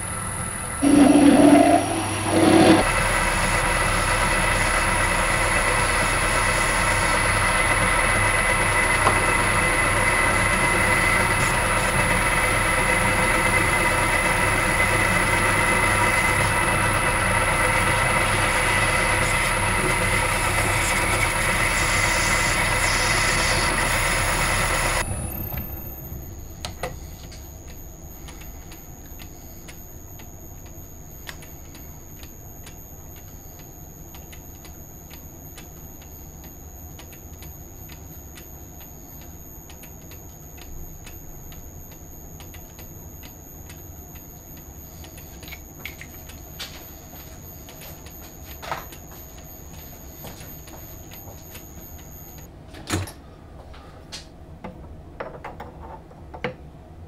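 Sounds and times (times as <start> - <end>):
metal lathe whining: 0.0 - 30.0.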